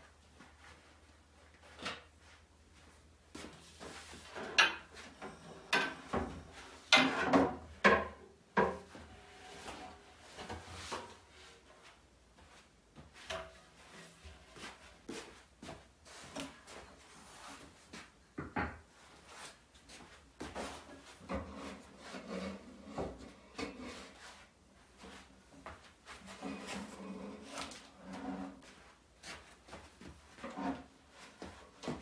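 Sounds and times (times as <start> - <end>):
rug dragged over hard floor: 26.2 - 29.4.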